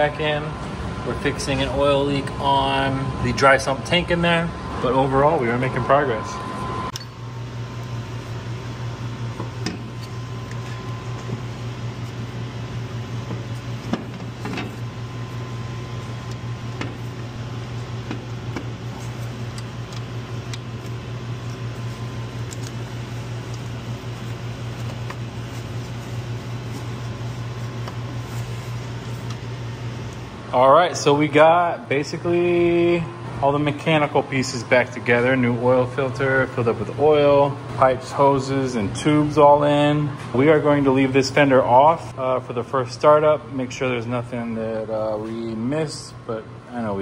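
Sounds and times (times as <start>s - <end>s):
low mechanical hum: 0.0s - 47.0s.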